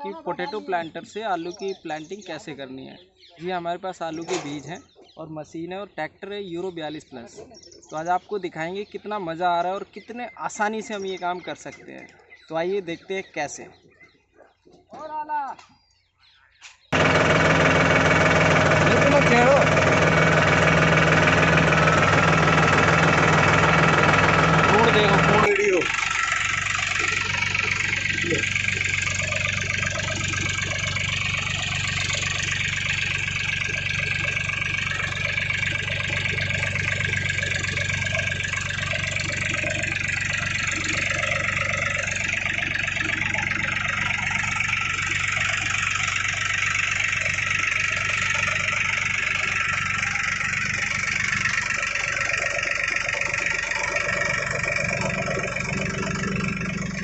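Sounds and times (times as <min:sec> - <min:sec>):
tractor diesel engine running: 0:16.9 - 0:57.0.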